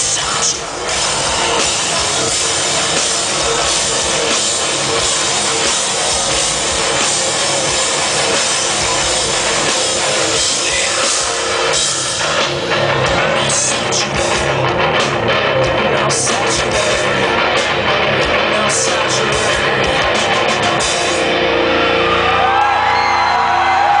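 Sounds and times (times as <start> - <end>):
person singing: 0.0 - 14.8, 15.5 - 21.3
drums with cymbal crashes: 0.0 - 15.2
distorted electric guitar: 0.0 - 24.0
crowd whooping and cheering: 21.2 - 24.0.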